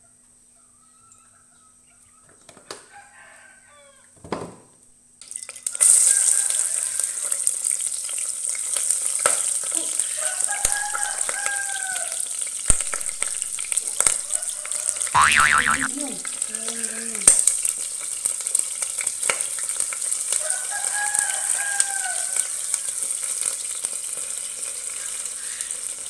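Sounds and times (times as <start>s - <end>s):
rooster crowing: 2.8s - 4.2s, 6.0s - 7.2s, 10.0s - 12.2s, 14.2s - 16.5s, 20.3s - 22.8s
onions sizzling in hot oil: 5.3s - 26.0s.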